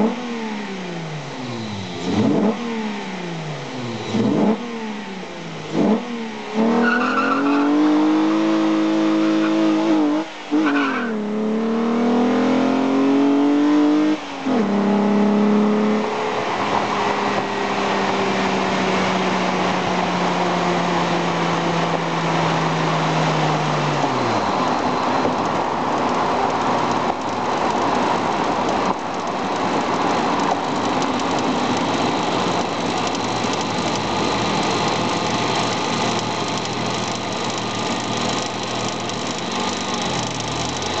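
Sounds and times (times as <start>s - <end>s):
car engine droning: 0.0s - 41.0s
road noise: 0.0s - 41.0s.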